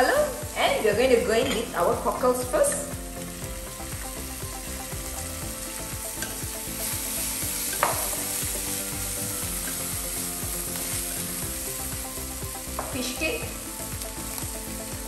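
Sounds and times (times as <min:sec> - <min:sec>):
food sizzling in a frying pan: 0:00.0 - 0:15.0.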